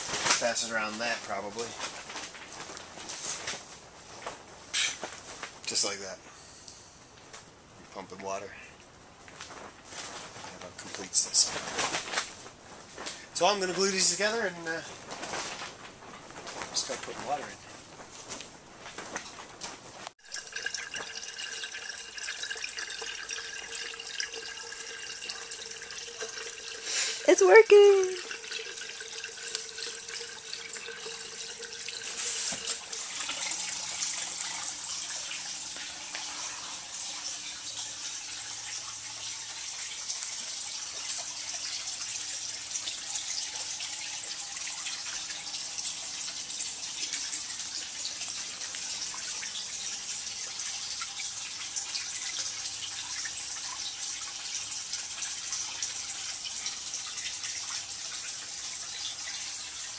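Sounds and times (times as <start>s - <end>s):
water splashing into tank: 20.2s - 59.9s.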